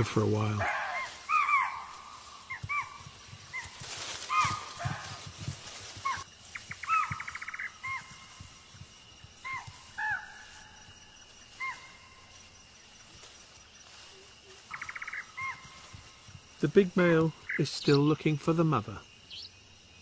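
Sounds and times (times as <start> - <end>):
high insect-like tone: 0.0 - 20.0
deer alarm barks: 0.5 - 5.2, 6.0 - 8.2.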